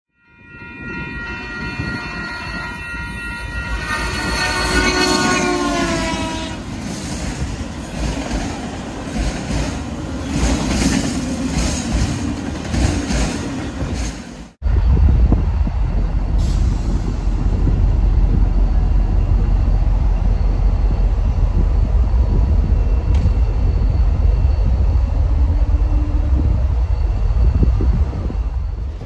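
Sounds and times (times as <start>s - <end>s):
locomotive air horn: 0.4s - 6.7s
train wheels clacking on rail joints: 6.7s - 14.6s
locomotive engine rumble: 14.6s - 29.0s.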